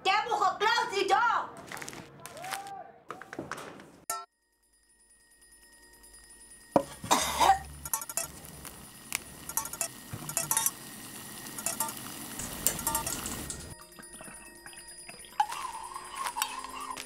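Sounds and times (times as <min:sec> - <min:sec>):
person coughing harshly: 0:07.0 - 0:07.7.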